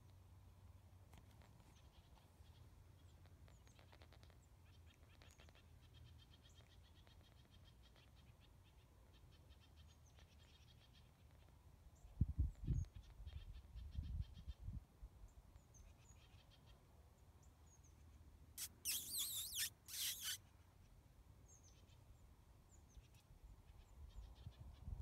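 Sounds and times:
faint bird chirps: 1.6 - 14.7, 18.6 - 20.6
high wavering cries: 18.6 - 20.4.

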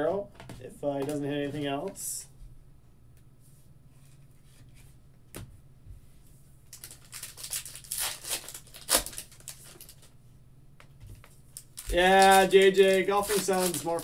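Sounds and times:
foil wrapper crinkling and tearing: 6.7 - 10.1, 11.5 - 14.0.

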